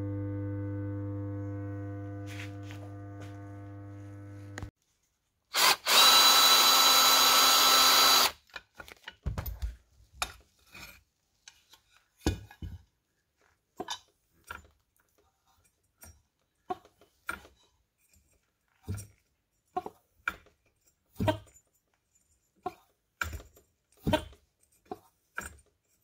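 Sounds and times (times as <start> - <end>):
power tool whirring: 5.5 - 8.4.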